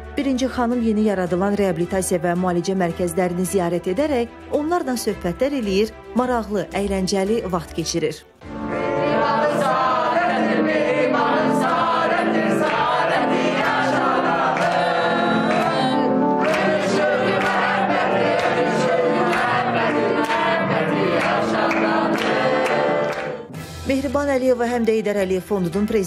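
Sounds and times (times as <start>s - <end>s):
young voices singing in chorus: 8.9s - 23.4s
hand claps: 12.6s - 23.5s.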